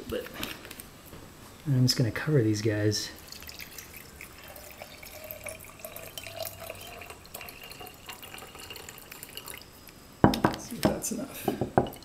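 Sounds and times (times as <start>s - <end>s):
liquid pouring into glass jar: 3.2s - 9.9s, 11.7s - 12.0s.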